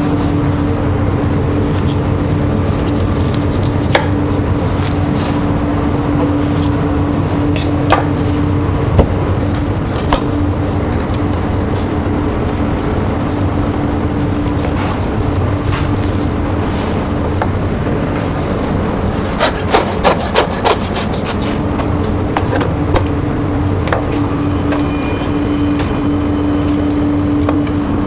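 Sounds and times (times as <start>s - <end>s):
steady kitchen hum: 0.0s - 28.0s
knife cutting meat: 19.2s - 21.9s.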